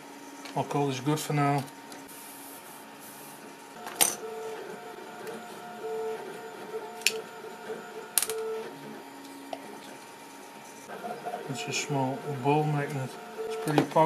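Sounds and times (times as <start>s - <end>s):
stepper motors whining: 3.4s - 14.0s.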